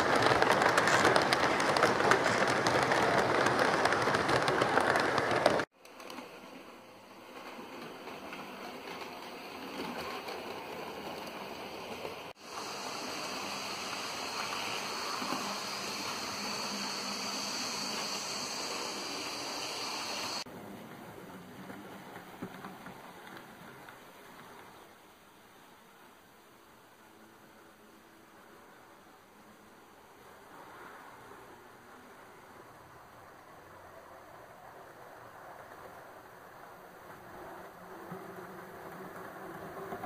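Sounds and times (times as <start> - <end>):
model train running: 0.0 - 20.5
model train rattling past: 0.0 - 24.9, 30.5 - 40.0
faint high whine: 12.4 - 20.4.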